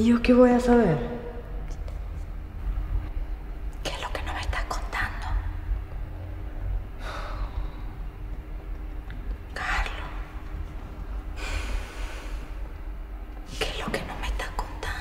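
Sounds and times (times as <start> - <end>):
low rumble and hum: 0.0 - 15.0
person breathing: 7.0 - 8.0, 11.4 - 12.7.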